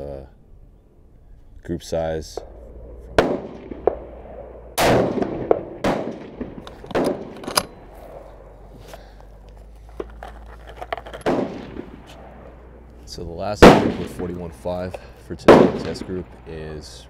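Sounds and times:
rifle shot: 3.1 - 8.5, 11.2 - 12.6, 13.6 - 14.5, 15.4 - 16.3
rifle bolt knocks and clicks: 6.6 - 7.8.

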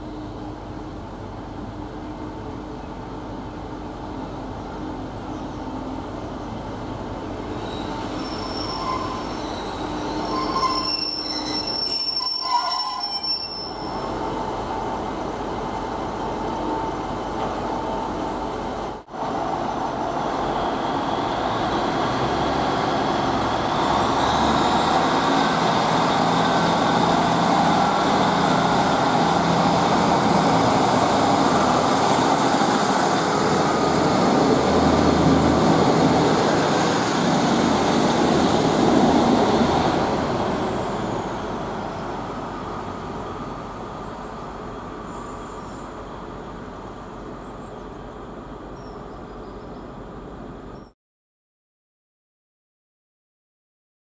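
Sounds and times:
diesel train engine pulling away: 0.0 - 50.8
train wheels squealing and clanking: 7.5 - 14.1, 45.0 - 46.0.

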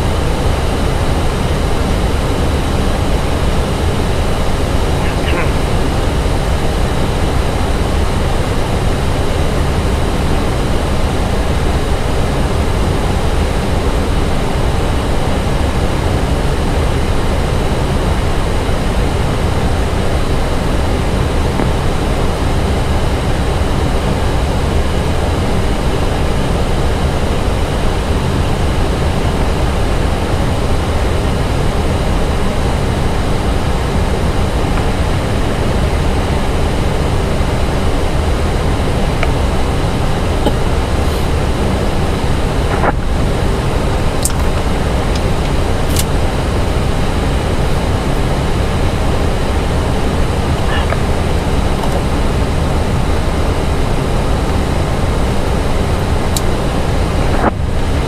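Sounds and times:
aircraft cabin rushing noise: 4.6 - 7.6, 37.8 - 52.4.

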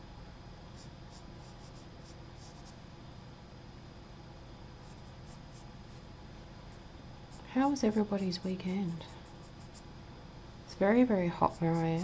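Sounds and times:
low room hum: 0.0 - 12.0
pencil scratching on paper: 0.8 - 2.8, 4.8 - 6.0, 9.0 - 9.9, 11.3 - 12.0.

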